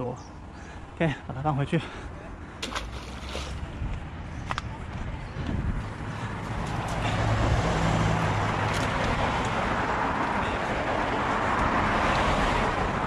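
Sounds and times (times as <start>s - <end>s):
passing vehicle engine hum: 2.6s - 13.0s.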